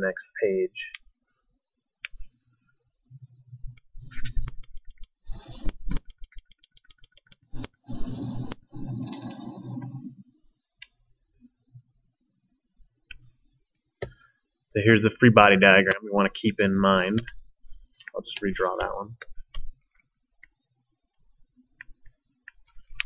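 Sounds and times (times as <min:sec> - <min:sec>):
computer mouse clicking: 0:03.7 - 0:10.0, 0:21.8 - 0:23.0.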